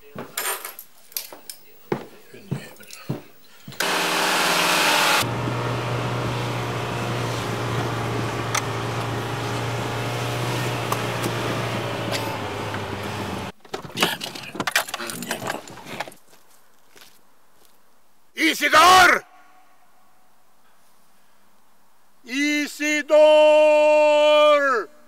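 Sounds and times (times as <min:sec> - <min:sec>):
car engine droning: 0:03.8 - 0:13.5.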